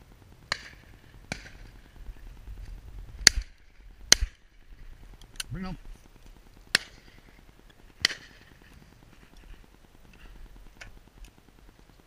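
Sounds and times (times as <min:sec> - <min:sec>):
shotgun shots: 0:00.5 - 0:01.8, 0:06.7 - 0:07.2, 0:08.0 - 0:08.5.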